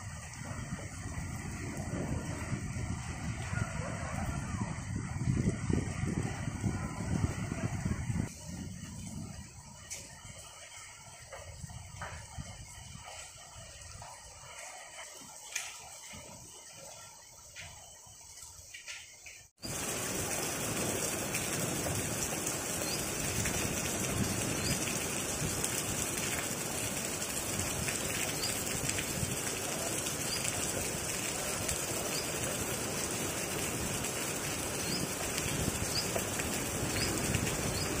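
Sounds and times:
steady rain: 0.0s - 38.0s.

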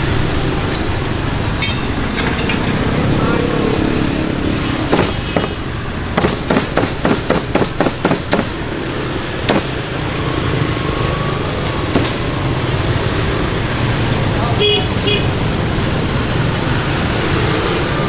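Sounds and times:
street traffic noise: 0.0s - 18.0s
cleaver chopping on wooden block: 4.9s - 5.6s, 6.2s - 8.6s, 9.5s - 9.8s.

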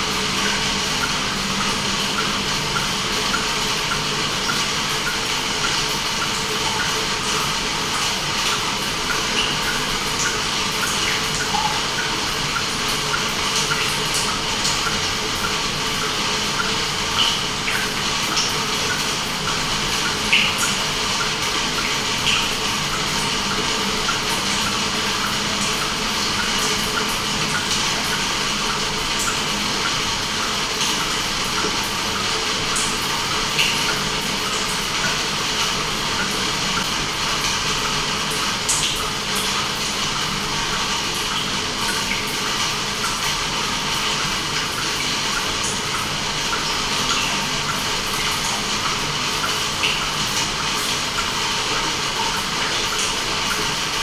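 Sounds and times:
small drips or pops: 0.1s - 39.6s.

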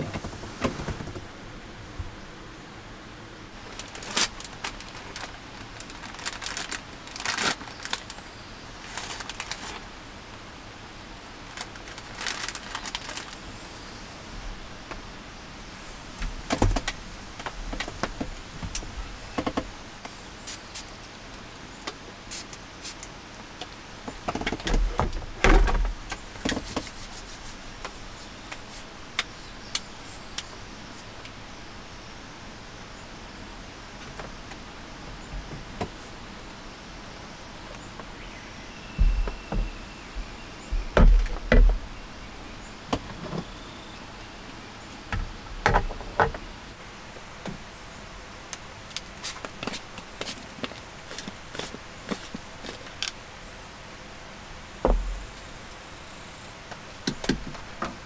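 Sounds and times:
rain hissing: 0.0s - 45.5s.

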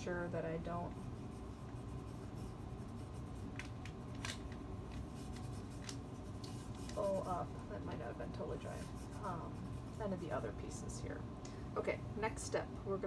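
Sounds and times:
steady low hum: 0.0s - 13.0s
hands rubbing vinyl on wood: 5.0s - 7.4s.

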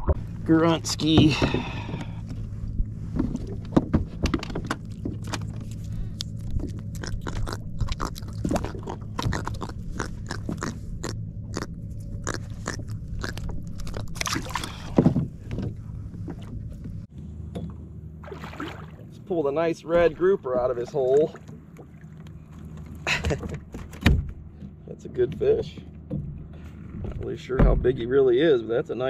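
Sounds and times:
steady low hum: 0.0s - 29.0s
fishing tackle clicks and knocks: 3.2s - 6.7s.

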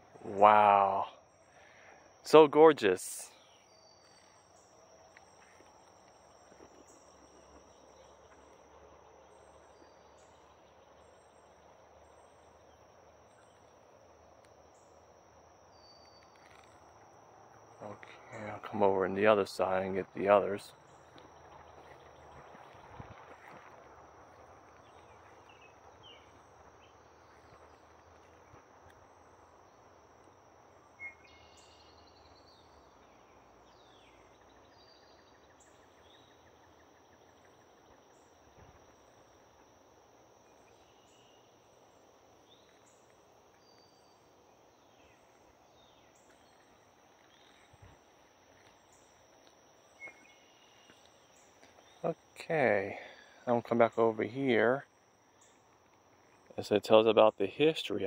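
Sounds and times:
faint bird chirps: 0.0s - 16.9s, 17.7s - 39.2s, 40.4s - 58.0s
high insect drone: 0.0s - 58.0s.

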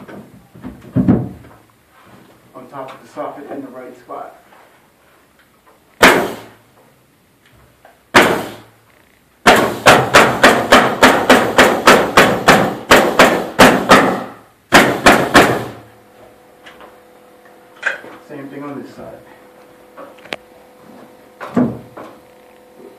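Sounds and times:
nail gun firing into wood: 6.0s - 6.6s, 8.1s - 8.7s, 9.4s - 15.8s.

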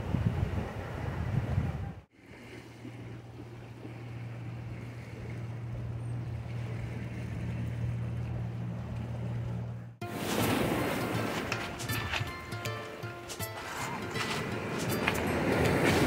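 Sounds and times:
wind noise: 0.0s - 2.1s
low engine hum: 0.0s - 11.9s.

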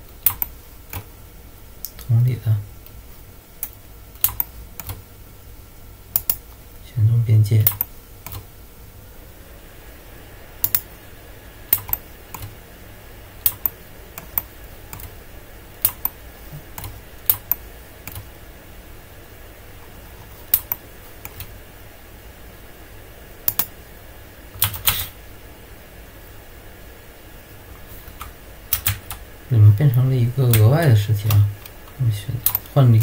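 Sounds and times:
faint steady hum: 0.0s - 33.0s
keyboard and mouse clicks: 0.2s - 1.1s, 3.6s - 5.0s, 6.1s - 6.4s, 7.6s - 8.5s, 10.6s - 10.9s, 11.7s - 12.6s, 13.4s - 15.2s, 15.8s - 18.3s, 20.5s - 21.5s, 23.4s - 23.7s, 24.6s - 25.1s, 28.1s - 29.2s, 32.4s - 32.7s.

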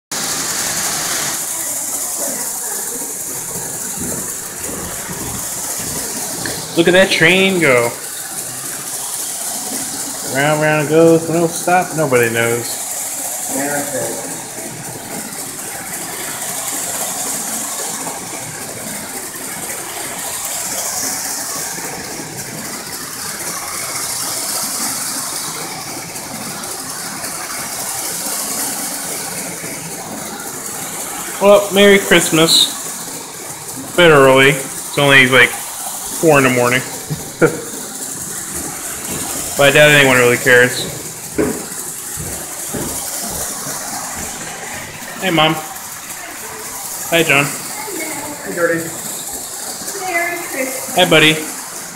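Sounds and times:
toy train running on track: 0.1s - 51.9s
steady hiss: 0.2s - 51.9s.

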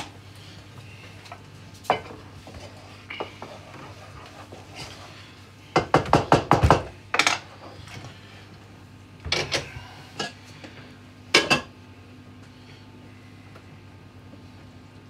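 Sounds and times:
pots and pans clattering: 11.3s - 11.7s.

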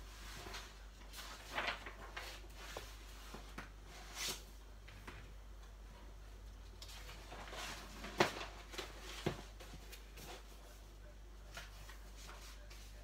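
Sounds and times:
paper pages rustling: 0.1s - 4.5s, 6.8s - 10.6s.

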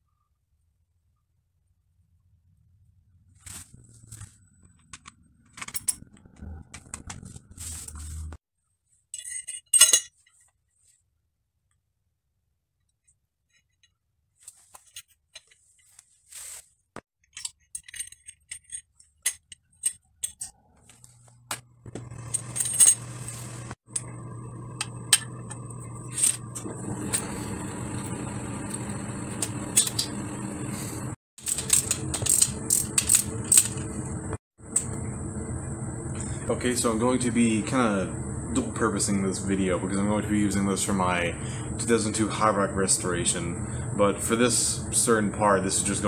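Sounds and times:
metal fork parts clinking: 9.2s - 10.2s, 17.2s - 20.5s
steady low hum: 21.1s - 46.0s.

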